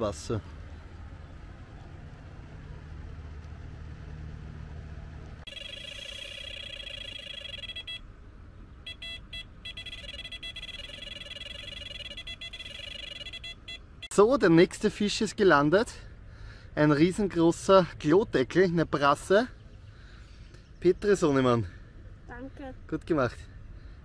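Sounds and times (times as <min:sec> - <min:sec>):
bite alarm beeping rapidly: 0:05.5 - 0:08.0, 0:08.8 - 0:14.2.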